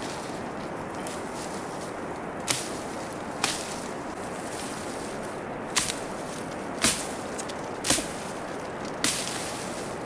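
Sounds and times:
blade chopping tree branches: 2.4s - 3.9s, 5.7s - 6.2s, 6.8s - 9.8s.

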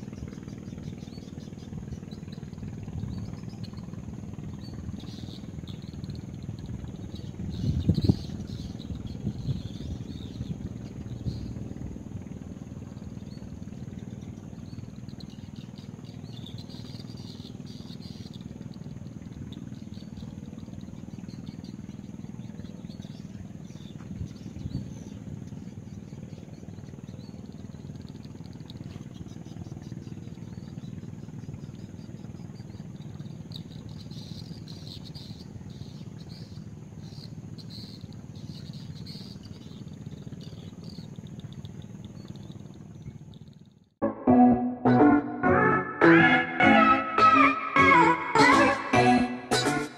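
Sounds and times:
steady low rumble: 0.0s - 27.6s
high insect drone: 0.0s - 43.8s.

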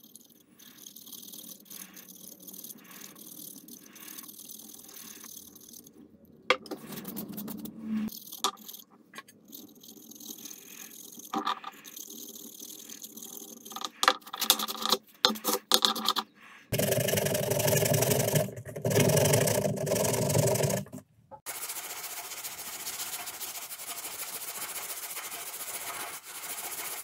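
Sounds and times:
sandpaper rasping on wood: 21.5s - 27.0s.

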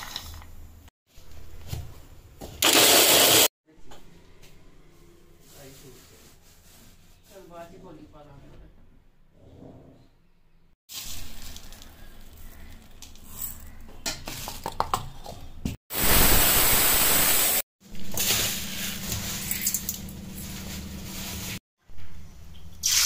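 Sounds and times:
mixer grinder running: 2.6s - 3.5s.

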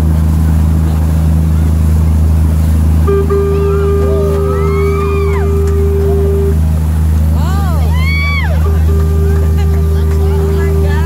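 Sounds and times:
boat engine droning: 0.0s - 11.0s
rush of churning wake: 0.0s - 11.0s
steady held tone: 0.0s - 11.0s
short rising and falling sounds: 3.1s - 6.6s.

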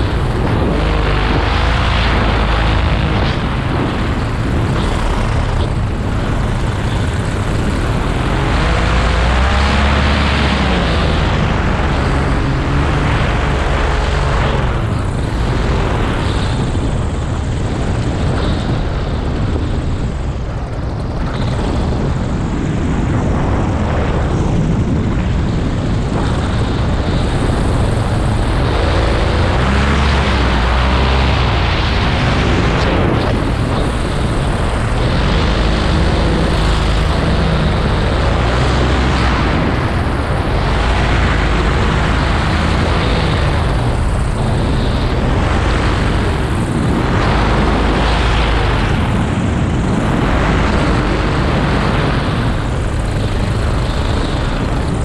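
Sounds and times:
paramotor engine and propeller: 0.0s - 55.0s
wind rushing over microphone: 0.0s - 55.0s.

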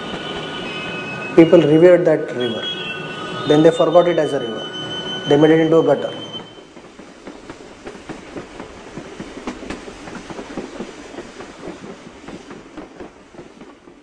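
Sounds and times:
rapid clacking and rattling: 6.7s - 14.0s.

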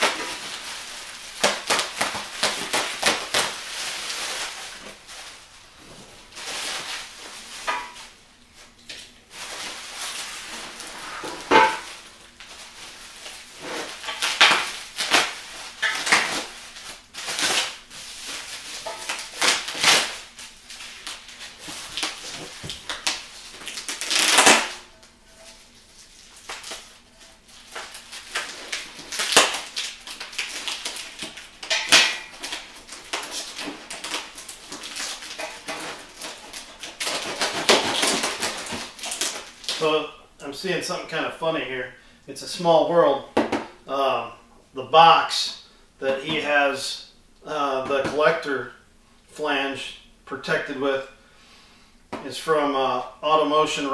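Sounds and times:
plastic wrap crinkling: 0.0s - 40.0s
knife cutting plastic: 21.1s - 24.8s, 27.7s - 39.8s.

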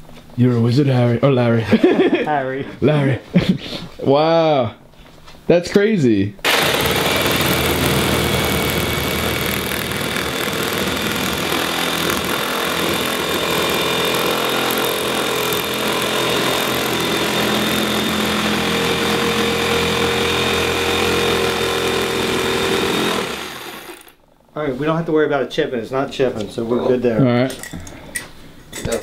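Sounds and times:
jigsaw cutting wall panel: 6.4s - 24.2s.

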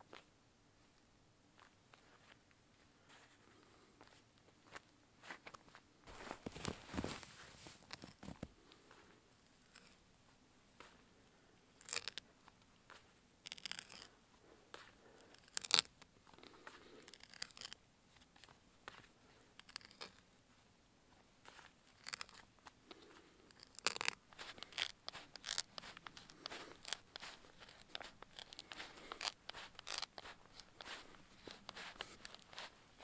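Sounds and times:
hand auger crunching into wood: 23.6s - 32.7s.

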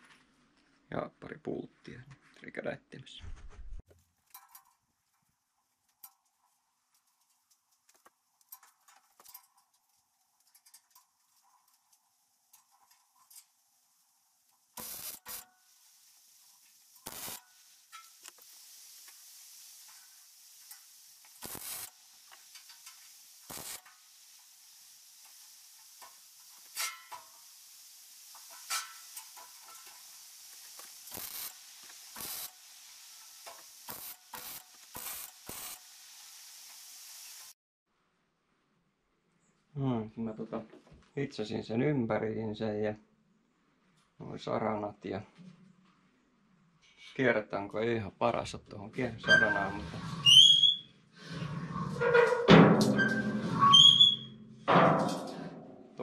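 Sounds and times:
welding arc hissing and crackling: 11.3s - 37.6s.

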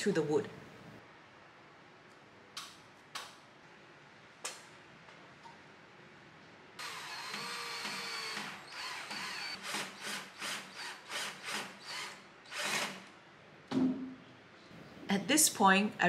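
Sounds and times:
cordless drill driving screw: 6.8s - 13.0s.

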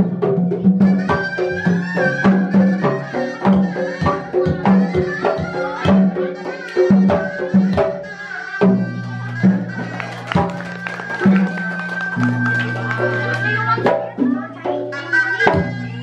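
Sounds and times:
hand drums beating: 0.0s - 16.0s
reedy shawm melody: 8.6s - 15.3s.

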